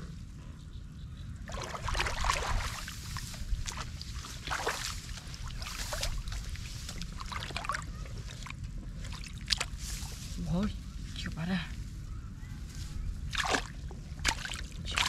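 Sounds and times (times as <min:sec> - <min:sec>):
shallow water splashing: 0:01.5 - 0:10.3, 0:13.2 - 0:15.0.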